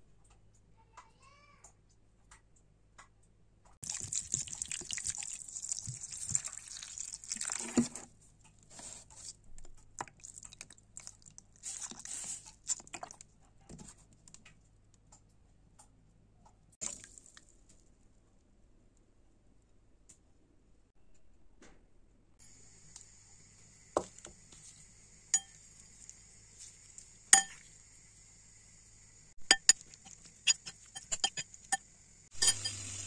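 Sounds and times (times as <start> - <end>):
water dripping: 3.8 - 7.6, 16.8 - 17.7
water pouring over vegetables in a bowl: 3.8 - 8.0, 16.8 - 17.5.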